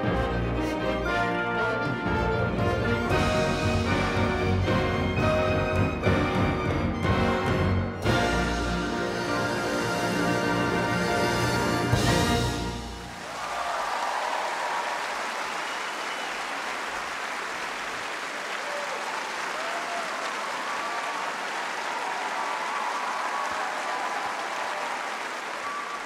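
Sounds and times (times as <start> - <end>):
audience cheering: 12.4 - 26.0
audience applauding: 12.6 - 26.0.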